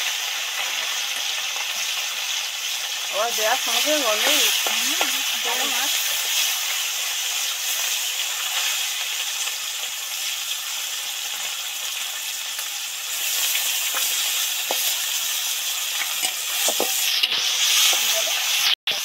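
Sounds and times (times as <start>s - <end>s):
fish sizzling in hot oil: 0.0s - 19.0s.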